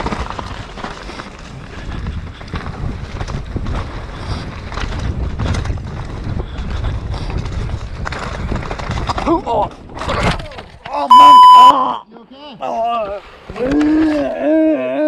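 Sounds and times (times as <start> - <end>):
wind buffeting microphone: 0.0 - 10.8
bike clicks and clatters: 0.0 - 10.9
tyres rumbling on dirt: 0.0 - 11.6.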